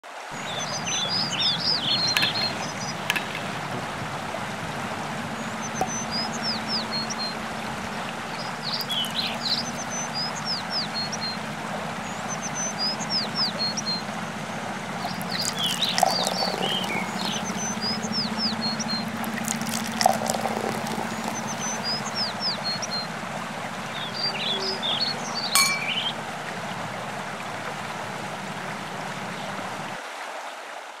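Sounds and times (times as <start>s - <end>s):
flowing water: 0.0s - 31.0s
birds chirping: 0.3s - 30.0s
liquid being poured: 0.4s - 11.3s, 14.8s - 22.8s, 25.6s - 26.3s.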